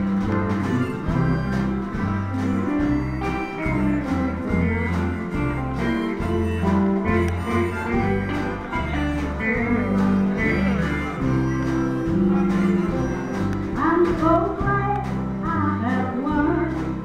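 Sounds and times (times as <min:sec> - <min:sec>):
guitar chords: 0:00.0 - 0:16.7
bass line: 0:00.0 - 0:17.0
woman singing: 0:13.7 - 0:17.0.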